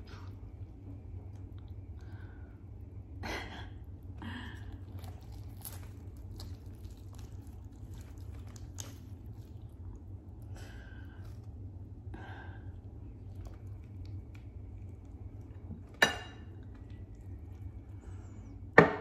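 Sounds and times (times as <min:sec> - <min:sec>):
steady low hum: 0:00.0 - 0:19.0
wet tearing of meat: 0:04.7 - 0:10.5.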